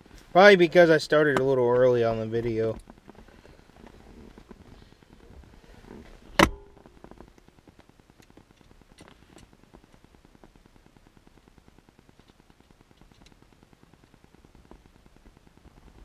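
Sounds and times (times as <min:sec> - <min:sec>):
sharp loud knock: 0:06.4 - 0:06.8.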